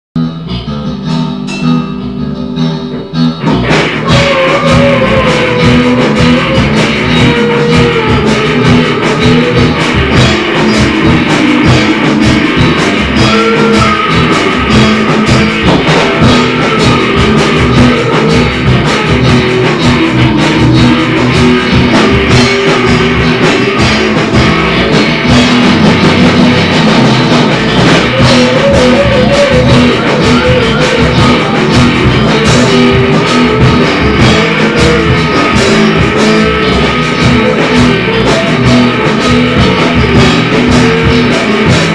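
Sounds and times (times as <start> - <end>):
bass: 0.0 - 41.9
drum kit: 0.2 - 41.9
electric guitar lead: 0.2 - 41.9.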